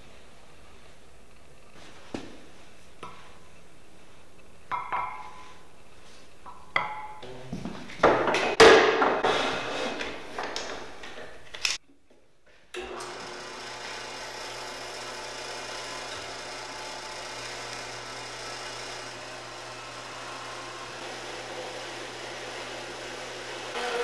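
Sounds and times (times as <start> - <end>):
band saw humming: 12.8 - 24.0.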